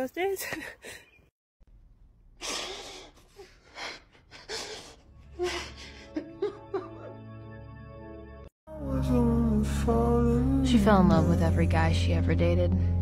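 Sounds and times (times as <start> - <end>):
person crying: 3.8 - 7.2
soft music with held chord: 5.5 - 13.0.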